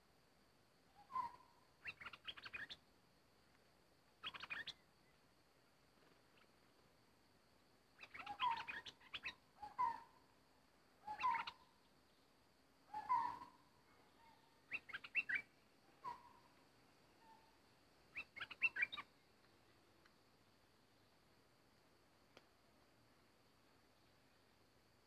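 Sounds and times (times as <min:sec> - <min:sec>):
bulbul singing whistled notes: 0:01.0 - 0:02.8, 0:04.2 - 0:04.8, 0:08.0 - 0:10.1, 0:11.0 - 0:11.7, 0:12.9 - 0:13.6, 0:14.7 - 0:16.5, 0:18.1 - 0:19.2.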